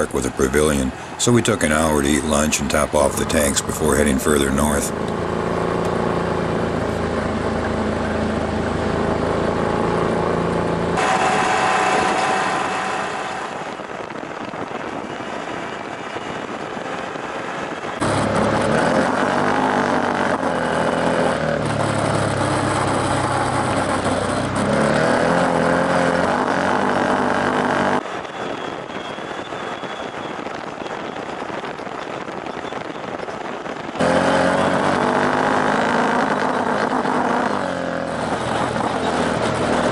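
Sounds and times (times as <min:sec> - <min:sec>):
utv engines running: 0:00.0 - 0:15.4, 0:18.0 - 0:29.2, 0:33.9 - 0:39.9.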